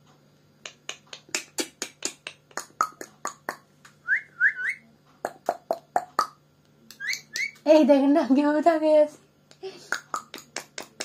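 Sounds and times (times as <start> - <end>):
parakeet chattering: 5.3 - 7.7
parakeet whistles: 7.0 - 7.6.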